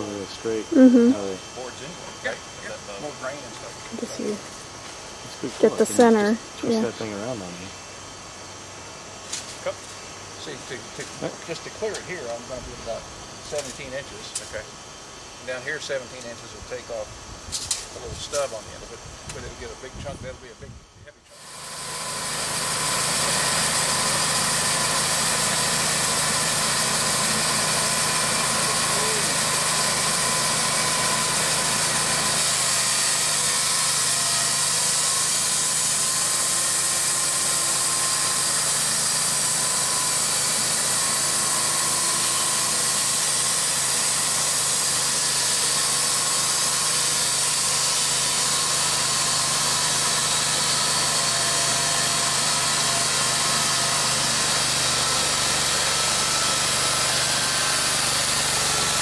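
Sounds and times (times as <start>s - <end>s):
sawmill engine running: 21.3s - 59.0s
band blade sawing log: 21.4s - 59.0s.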